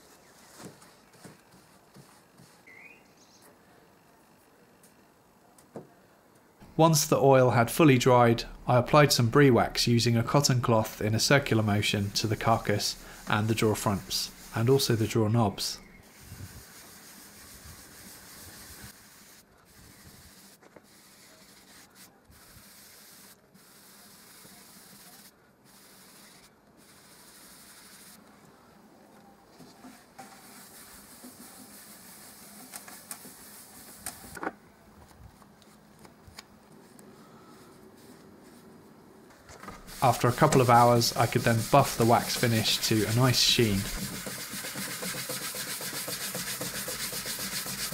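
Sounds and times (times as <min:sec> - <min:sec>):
cloth scrubbing wood: 0:11.0 - 0:15.2, 0:39.8 - 0:47.9.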